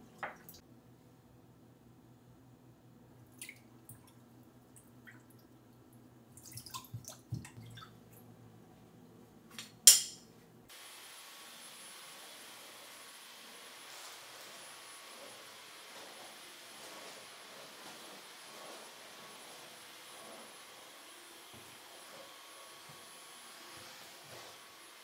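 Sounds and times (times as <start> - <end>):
water dripping: 3.3 - 8.2
small water splashes: 6.4 - 7.9.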